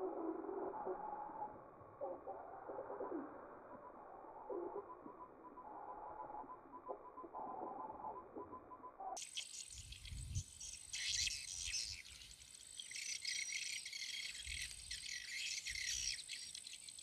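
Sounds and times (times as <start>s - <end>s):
insects chirping: 9.1s - 17.0s.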